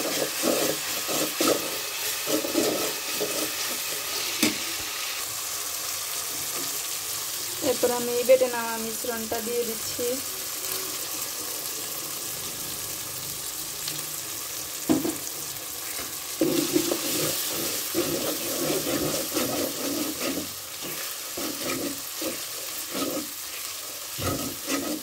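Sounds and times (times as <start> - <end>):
metal spoon scraping a pot: 0.0 - 4.6, 16.4 - 25.0
vegetables sizzling in hot oil: 0.0 - 25.0.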